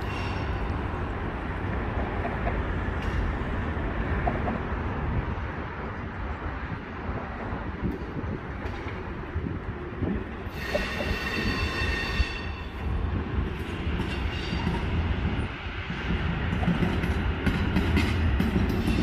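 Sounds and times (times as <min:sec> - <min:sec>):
high wheel squeal: 0:00.0 - 0:00.8, 0:10.5 - 0:12.8
train wheels rumbling on rail: 0:00.0 - 0:19.0.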